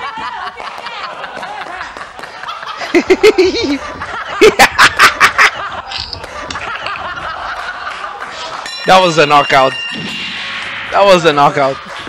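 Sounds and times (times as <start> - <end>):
man laughing hard: 2.7 - 8.6.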